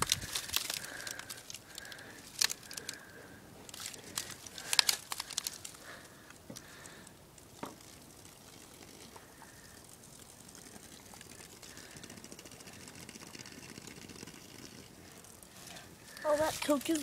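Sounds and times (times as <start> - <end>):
can crackles and clicks: 0.0 - 3.0, 3.7 - 9.5.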